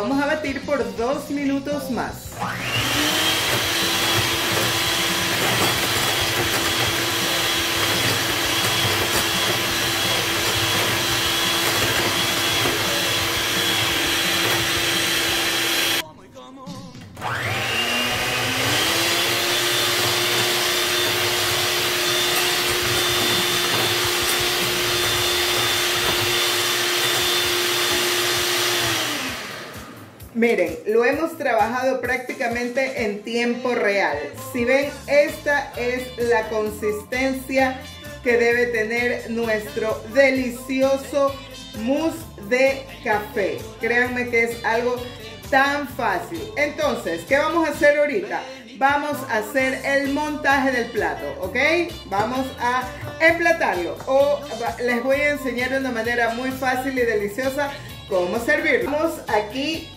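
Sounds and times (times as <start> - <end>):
electric hand mixer running: 2.3 - 16.0, 17.2 - 30.4.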